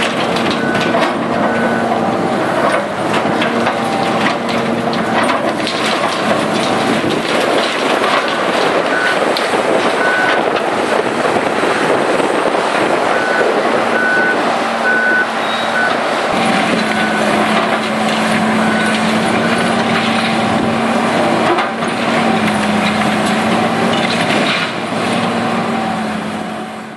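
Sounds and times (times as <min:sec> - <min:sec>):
excavator diesel engine hum: 0:00.0 - 0:26.9
backup alarm beeping: 0:13.1 - 0:16.0.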